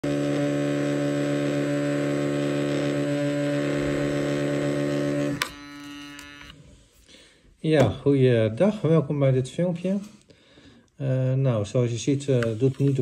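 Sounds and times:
electric toothbrush humming: 0.0s - 6.6s.

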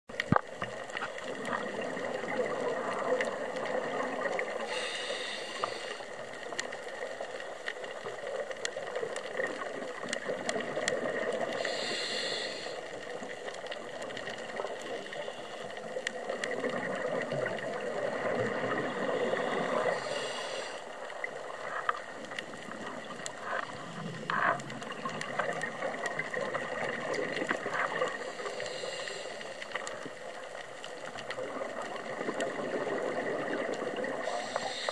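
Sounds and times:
faint clicks: 0.1s - 34.9s
regulator inhale hiss: 4.3s - 6.8s, 11.4s - 16.0s, 18.9s - 21.3s, 28.1s - 30.2s, 34.1s - 34.9s
bubbly gurgling exhales: 21.6s - 28.5s, 31.3s - 34.9s.

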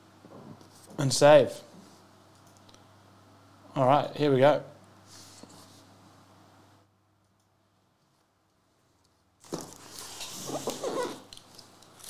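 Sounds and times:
cardboard rubbing and scraping: 9.5s - 11.3s
squeaky glides on cardboard: 10.0s - 11.3s.

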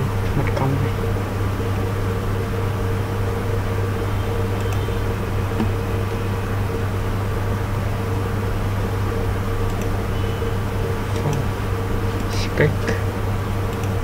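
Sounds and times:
low electrical hum: 0.0s - 14.0s
faint clicks: 4.5s - 4.9s, 9.6s - 10.0s, 13.7s - 14.0s.

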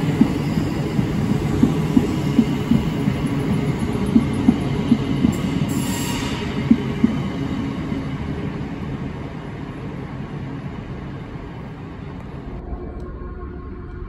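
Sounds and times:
train wheels knocking: 0.0s - 5.7s, 6.5s - 7.4s
electric train rumbling past: 0.0s - 14.0s.

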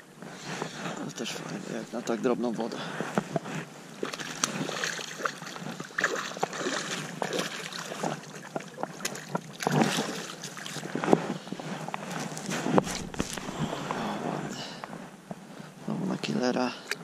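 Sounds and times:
splashing and rustling: 2.9s - 14.0s.

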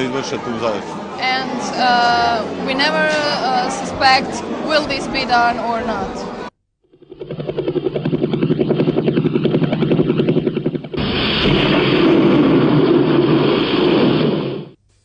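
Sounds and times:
thunderclap sound effect: 7.2s - 14.8s.

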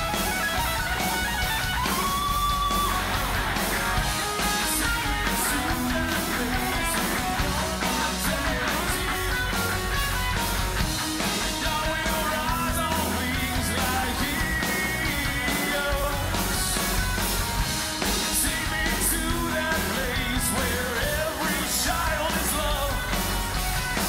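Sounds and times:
electric guitar solo: 0.0s - 5.6s
live rock band playing: 0.0s - 24.0s.

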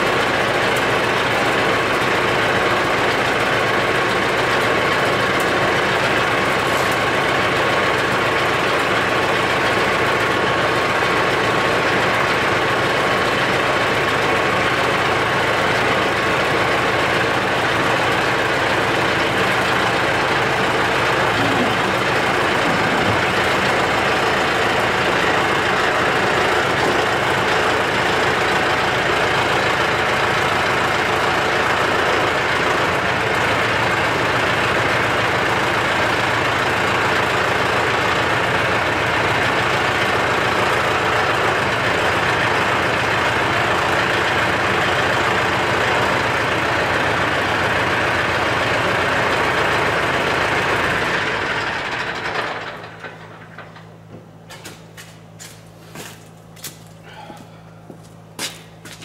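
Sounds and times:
tractor engine idling: 0.0s - 59.0s.

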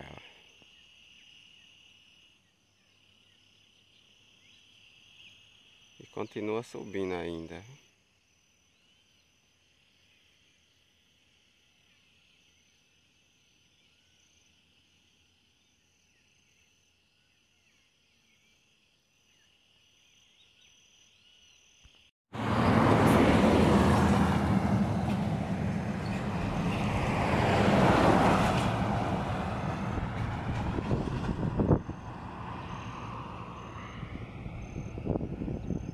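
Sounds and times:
insects chirping: 0.0s - 22.1s, 22.7s - 35.9s
vehicle passing on highway: 22.3s - 35.9s.

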